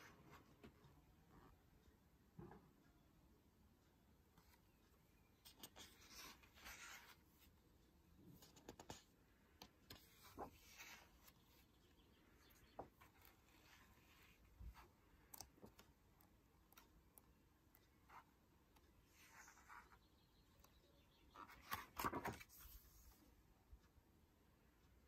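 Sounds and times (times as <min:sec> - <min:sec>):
book pages turning: 0:05.4 - 0:07.6, 0:08.4 - 0:11.7, 0:21.4 - 0:23.2.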